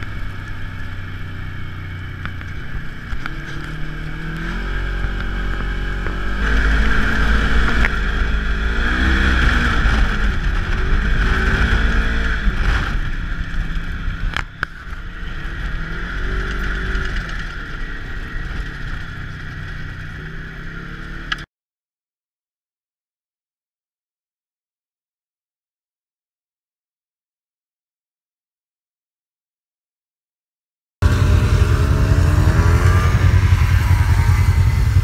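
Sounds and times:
engine revving inside cab: 3.1 - 14.4, 31.0 - 35.0.

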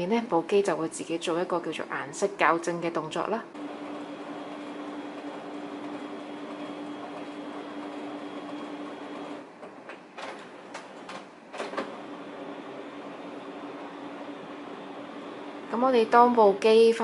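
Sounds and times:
printer whine: 3.5 - 16.2
printer hum: 3.5 - 16.6.

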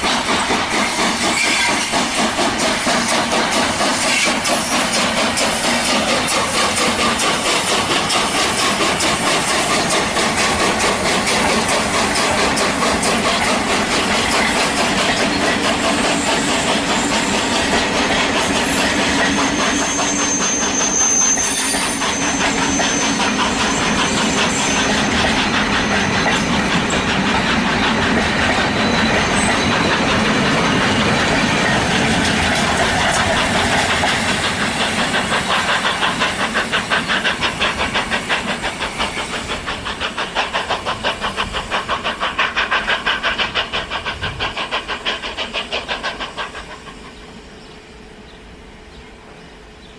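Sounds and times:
steam hissing: 0.0 - 48.9
steam train running: 0.0 - 49.9.

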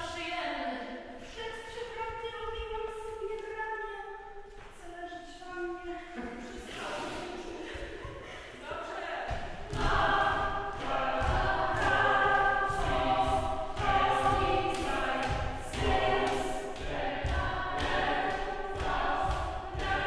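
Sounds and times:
women singing unaccompanied: 8.6 - 20.0.

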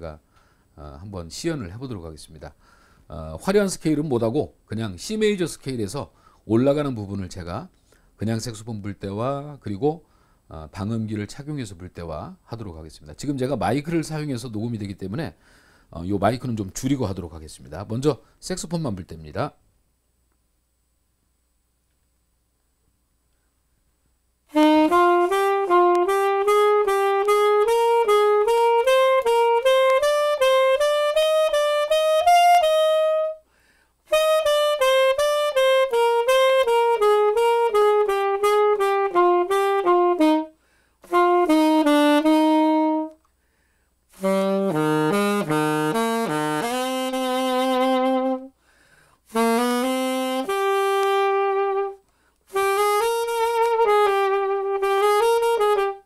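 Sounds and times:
saxophone playing scales: 24.5 - 43.3, 44.1 - 48.6, 49.3 - 56.0.

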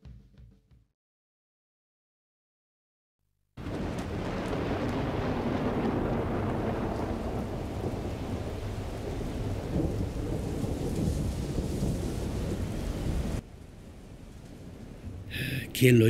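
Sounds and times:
steady rain: 3.6 - 16.0
thunder rumbling: 3.6 - 16.0.

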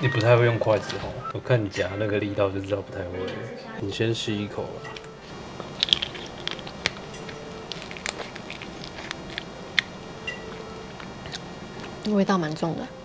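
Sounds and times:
crunching and chewing crab shell: 4.9 - 12.1.

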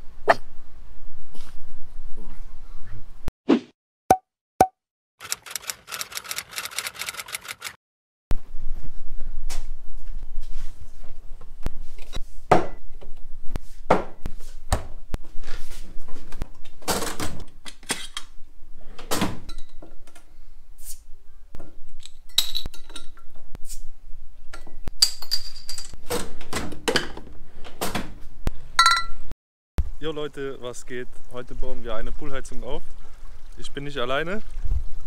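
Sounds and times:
glass bottles clinking together: 28.8 - 29.2.

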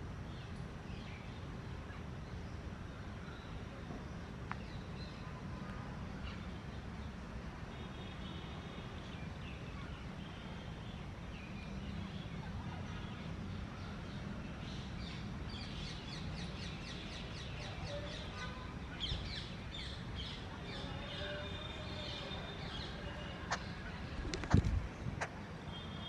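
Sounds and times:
birds chirping and calling: 14.6 - 24.7.

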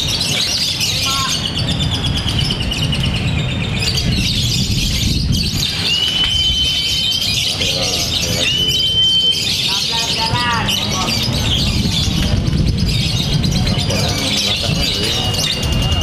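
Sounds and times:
lovebird chattering song: 0.0 - 16.0
crowd murmuring: 5.0 - 16.0.

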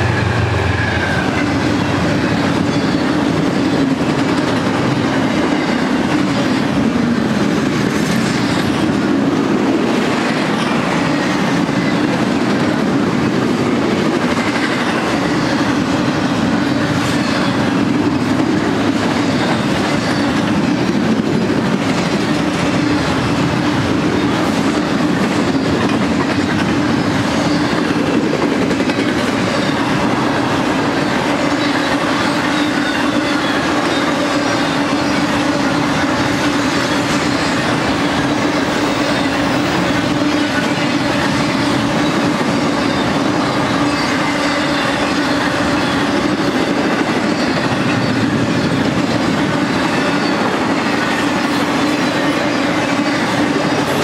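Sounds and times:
freight train wheels rumbling: 0.0 - 54.0
rail clicks: 0.0 - 54.0.

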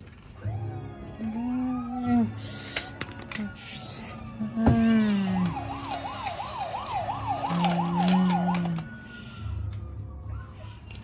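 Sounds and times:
toy police siren warbling: 4.0 - 9.2.

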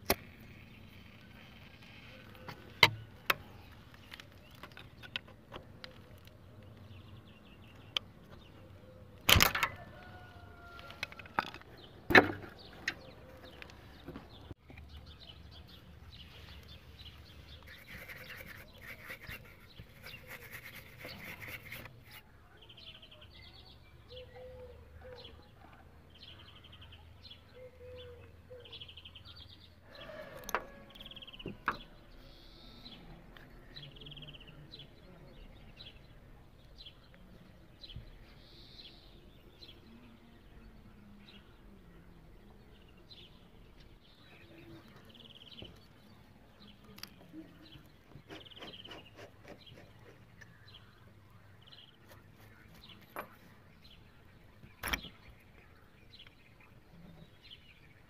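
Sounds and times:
small birds chirping: 0.0 - 58.0
sharp clicks: 9.2 - 9.8.

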